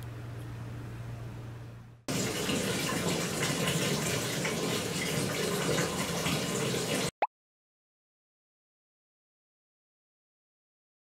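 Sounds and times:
faint steady hum: 0.0 - 2.1
water pouring into a tub: 2.1 - 7.2.

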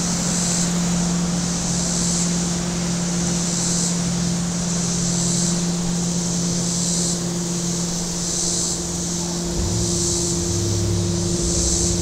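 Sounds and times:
motorboat engine running: 6.9 - 12.0.

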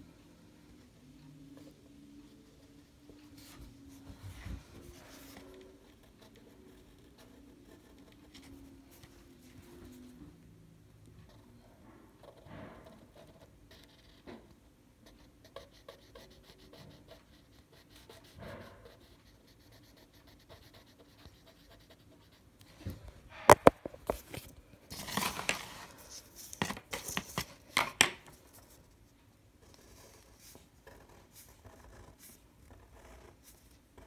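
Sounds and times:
marker scratching on paper: 12.2 - 14.3, 15.0 - 22.4, 23.3 - 24.3, 29.6 - 34.0
paper rustling: 23.3 - 28.7.

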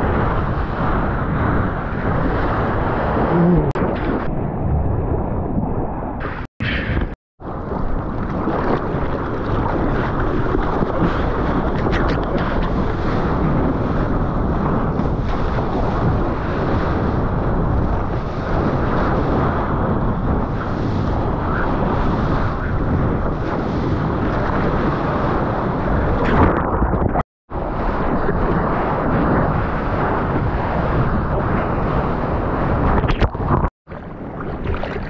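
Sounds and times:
wind and surf buffeting microphone: 0.0 - 35.0.

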